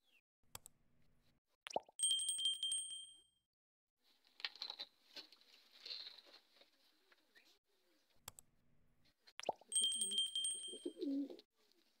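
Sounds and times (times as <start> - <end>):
pigeons cooing: 10.8 - 11.4.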